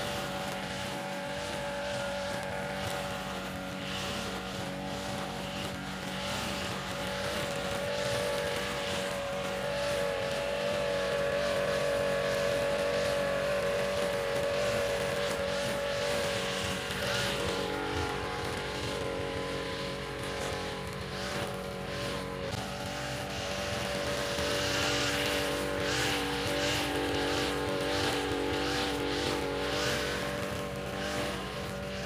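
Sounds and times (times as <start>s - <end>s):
brush cutter engine running: 0.0s - 32.0s
nylon line cutting grass: 0.0s - 32.0s.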